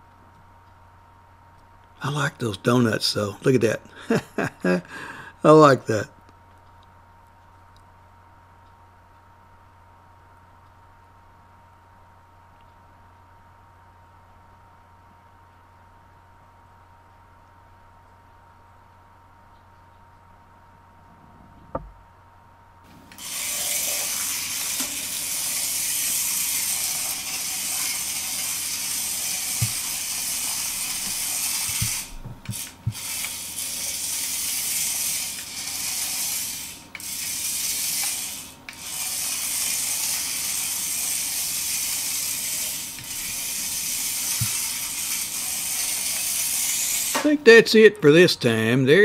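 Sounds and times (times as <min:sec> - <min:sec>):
toy car motor whirring: 0:22.9 - 0:47.3.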